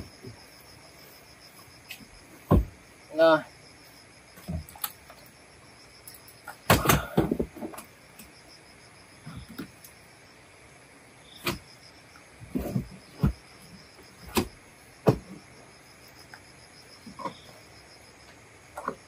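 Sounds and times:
insects chirping: 0:00.0 - 0:19.0.

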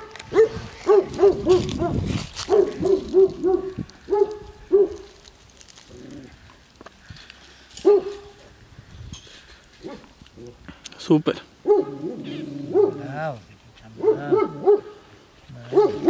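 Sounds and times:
dog barking: 0:00.3 - 0:05.1, 0:07.8 - 0:08.3, 0:11.6 - 0:13.1, 0:14.0 - 0:15.0, 0:15.7 - 0:16.0.

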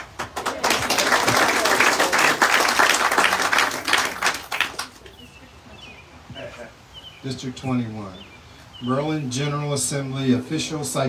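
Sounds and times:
audience applauding: 0:00.0 - 0:05.2.

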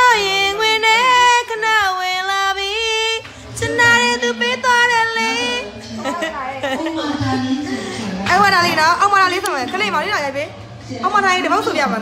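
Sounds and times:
high voice singing with vibrato: 0:00.0 - 0:08.8.

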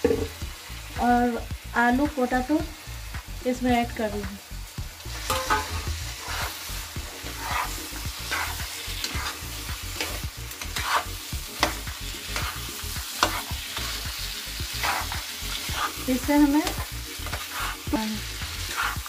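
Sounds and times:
spices sizzling: 0:00.0 - 0:19.0
spatula scraping a pan: 0:05.1 - 0:19.0.

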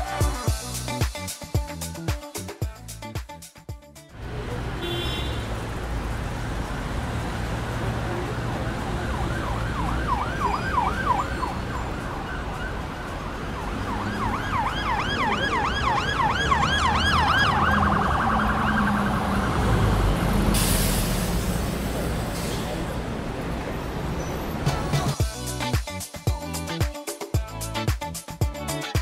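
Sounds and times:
siren yelping: 0:08.2 - 0:20.2.

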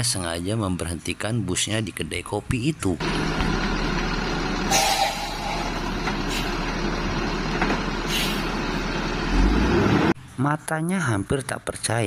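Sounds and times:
bus engine running: 0:02.8 - 0:10.2
air brake hiss: 0:04.7 - 0:06.6, 0:08.0 - 0:08.5.

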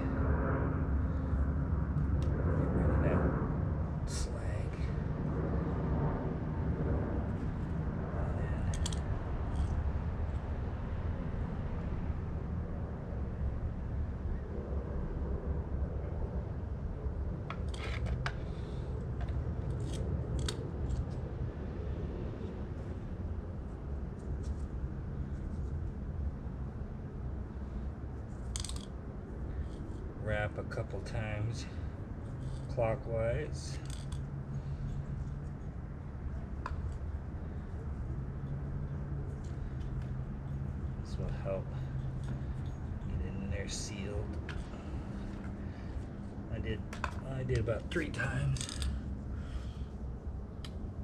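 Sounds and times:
low rumble: 0:00.0 - 0:24.0
steady low hum: 0:00.0 - 0:51.0.

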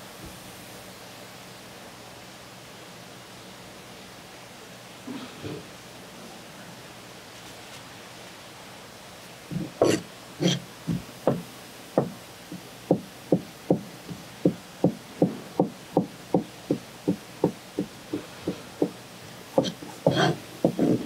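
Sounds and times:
knife chopping on wooden board: 0:09.5 - 0:18.9, 0:19.6 - 0:21.0.

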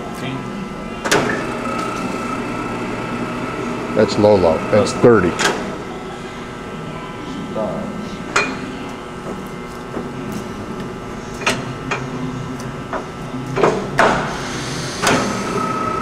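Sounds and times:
lathe gear hum: 0:01.1 - 0:05.9.

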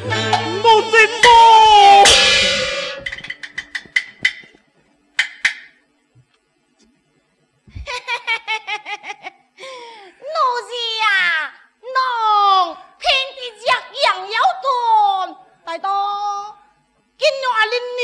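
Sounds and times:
cymbal crash: 0:00.0 - 0:03.6
rapid wooden strikes: 0:02.0 - 0:04.6, 0:05.2 - 0:05.8.

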